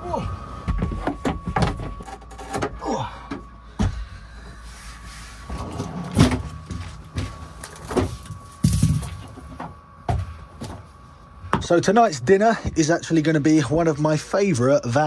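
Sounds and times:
faint steady hum: 0.0 - 15.0
fridge drawer sliding open: 5.5 - 6.6.

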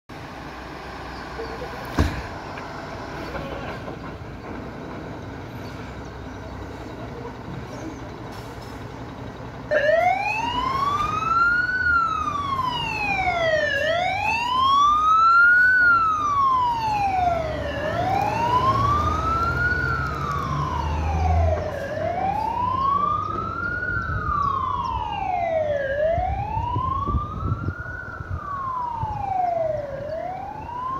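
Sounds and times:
truck engine: 0.1 - 30.9
fire engine siren wailing: 9.6 - 30.9.

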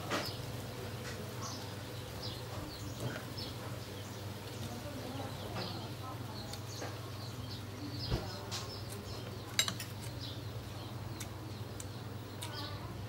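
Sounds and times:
birds chirping: 0.0 - 13.0
cutlery clinking on plate: 9.5 - 10.1.

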